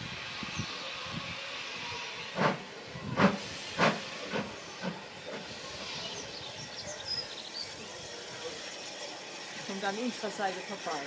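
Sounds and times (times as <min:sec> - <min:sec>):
steam hissing: 0:00.0 - 0:11.0
steam locomotive exhaust chuffs: 0:00.0 - 0:11.0.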